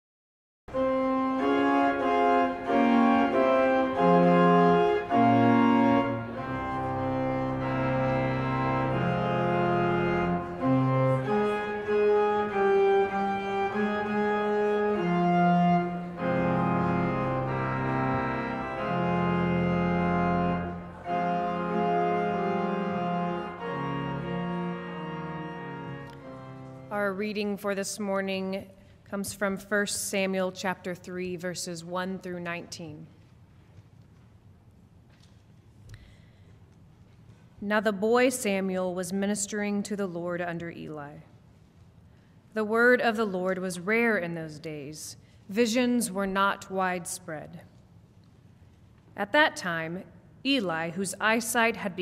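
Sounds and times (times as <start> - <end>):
pipe organ playing held chords: 0.7 - 27.4.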